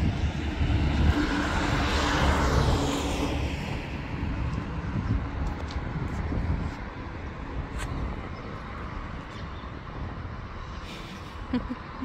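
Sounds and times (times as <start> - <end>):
vehicle passing: 0.0 - 9.2
steady low rumble: 0.0 - 11.8.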